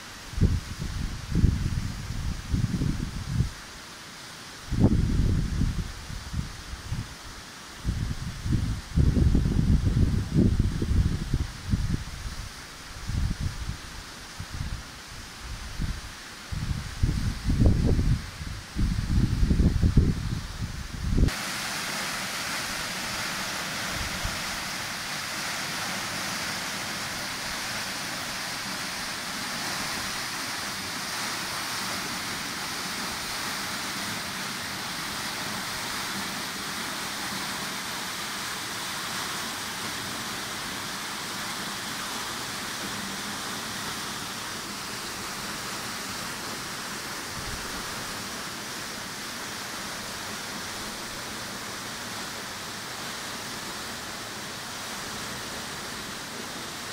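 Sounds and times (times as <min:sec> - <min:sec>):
waterfall rushing: 0:21.2 - 0:56.9.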